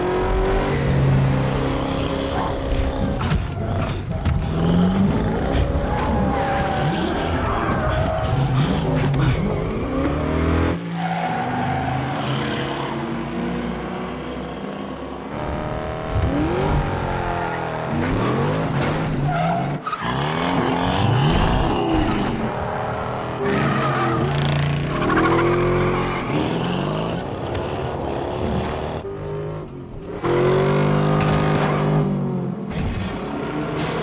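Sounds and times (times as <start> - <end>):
racing car engines revving: 0.0 - 34.0
tyres squealing and skidding: 0.6 - 13.4, 17.0 - 27.3.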